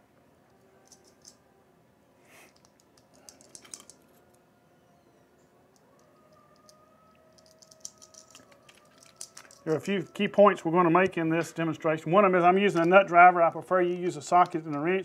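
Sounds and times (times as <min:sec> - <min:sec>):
small metal parts clicking: 0:00.8 - 0:01.4, 0:02.4 - 0:04.3, 0:05.7 - 0:09.9.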